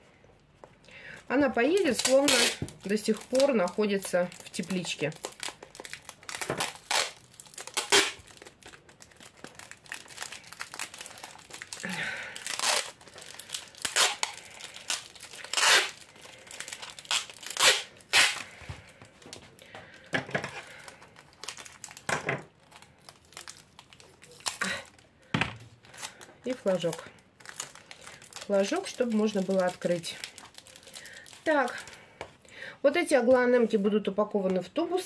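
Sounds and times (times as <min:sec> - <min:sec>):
plastic cups crinkling: 0:00.4 - 0:32.4
packing tape pulled off roll: 0:01.8 - 0:03.5, 0:04.3 - 0:18.6.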